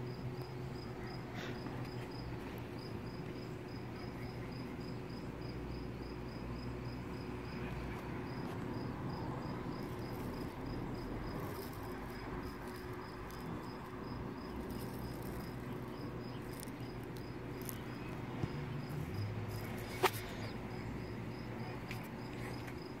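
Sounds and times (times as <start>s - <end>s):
insect chirping: 0.0s - 23.0s.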